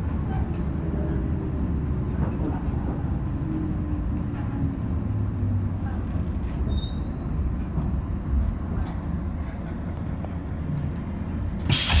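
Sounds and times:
faint high brake squeal: 6.6s - 10.9s.

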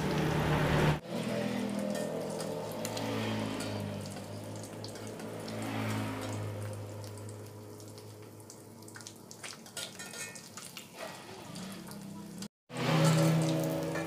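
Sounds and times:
metal spatula scraping wok: 0.4s - 6.4s, 9.6s - 12.1s, 12.7s - 14.0s
egg frying in hot oil: 1.0s - 14.0s.

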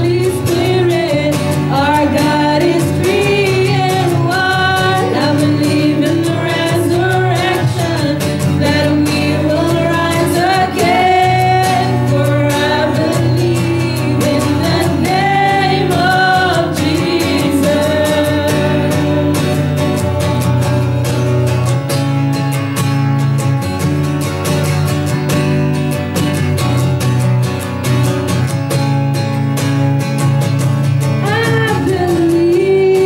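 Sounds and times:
women singing: 0.0s - 21.6s, 31.2s - 33.0s
strummed acoustic guitar: 0.0s - 33.0s.

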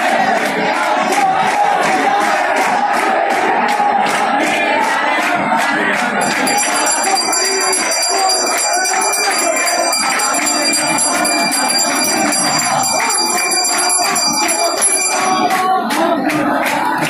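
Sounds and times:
sharp bell strikes: 6.2s - 15.6s
hand bell ringing: 6.2s - 15.7s.

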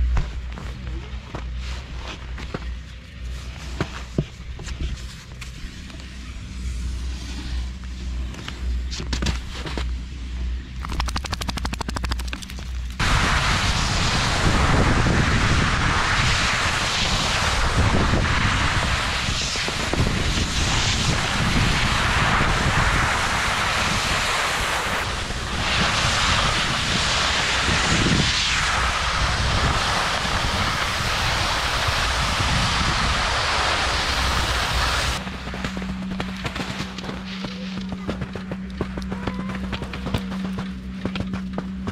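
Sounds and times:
skis scraping over snow: 0.3s - 10.2s, 12.0s - 41.9s
wind buffeting microphone: 13.0s - 35.2s.

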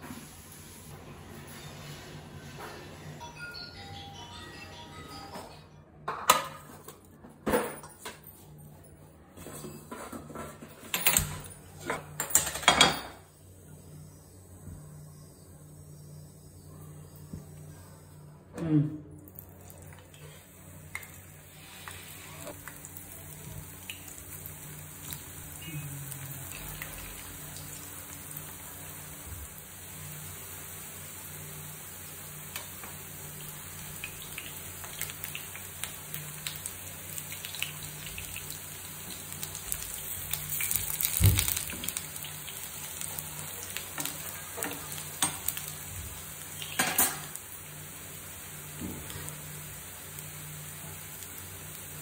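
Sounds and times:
patties sizzling in oil: 19.4s - 52.0s
oil crackles: 20.8s - 28.6s, 33.8s - 47.5s.

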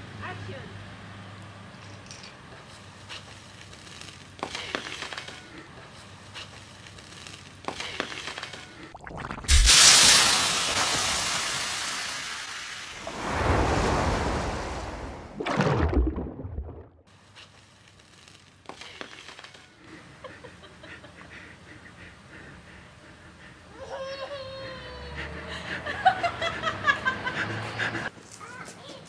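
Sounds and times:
cola fizzing rush: 8.8s - 17.0s.

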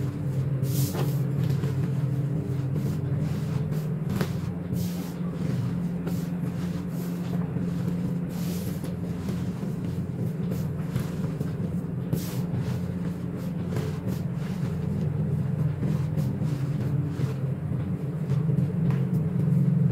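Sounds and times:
steady low hum: 0.0s - 19.9s.

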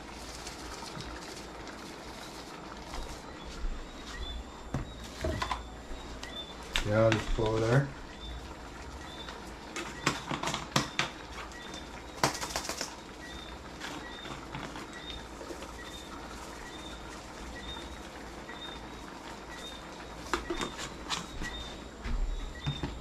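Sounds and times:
seasoning shaker rattling: 0.0s - 3.3s, 12.2s - 13.0s
faint high chirp: 2.8s - 7.4s, 8.0s - 23.0s.

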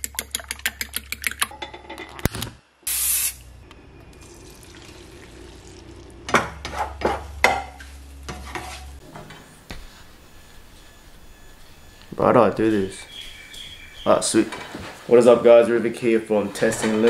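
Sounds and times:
short loud hiss: 2.9s - 3.4s
spatula scraping and knocking pan: 6.4s - 9.4s.

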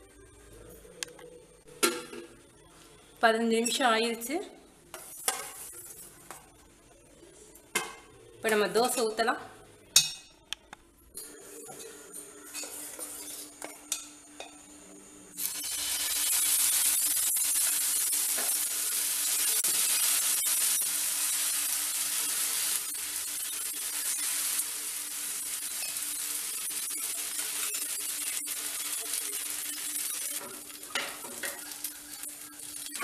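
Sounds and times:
batter sizzling on hot pan: 15.3s - 33.0s.

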